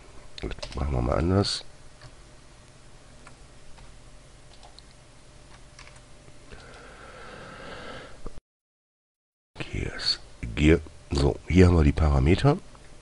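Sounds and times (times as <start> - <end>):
keyboard and mouse clicks: 4.5 - 6.8.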